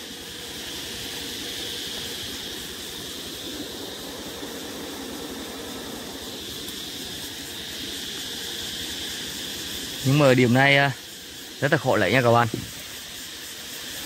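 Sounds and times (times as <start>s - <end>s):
high insect trill: 0.0s - 14.0s
honeybees humming: 0.0s - 14.0s.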